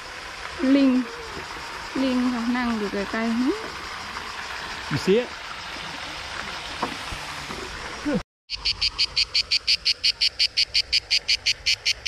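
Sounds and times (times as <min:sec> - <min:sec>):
steady hiss: 0:00.0 - 0:08.2
animal chirping rapidly: 0:08.5 - 0:12.0.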